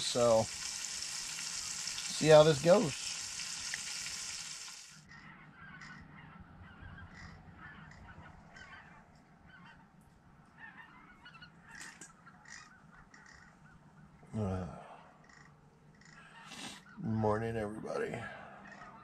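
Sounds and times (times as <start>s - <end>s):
frying sizzle: 0.0s - 5.0s
faint bird calls: 5.0s - 17.2s, 18.0s - 19.0s.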